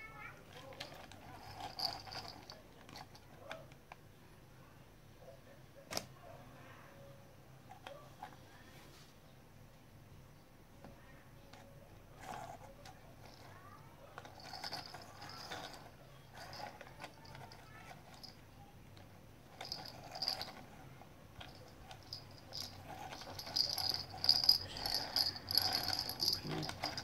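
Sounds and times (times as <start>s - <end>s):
plastic toy clicking and rattling: 0.5s - 4.0s, 12.2s - 18.4s, 19.0s - 20.8s, 21.4s - 27.0s.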